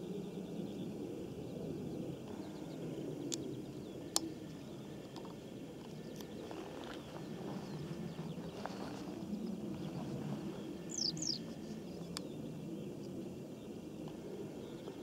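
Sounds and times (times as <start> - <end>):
faint bird chirps: 10.5 - 13.0.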